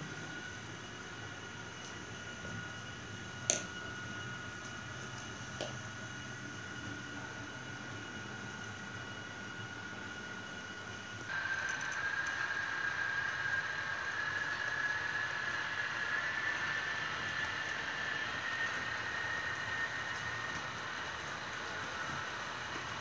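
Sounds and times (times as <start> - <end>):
high-pitched electric motor whine: 0.0 - 23.0.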